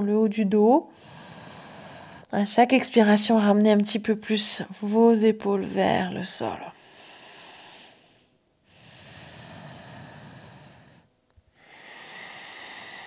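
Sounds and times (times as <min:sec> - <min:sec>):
person breathing slowly and deeply: 0:00.9 - 0:02.3, 0:06.7 - 0:13.0.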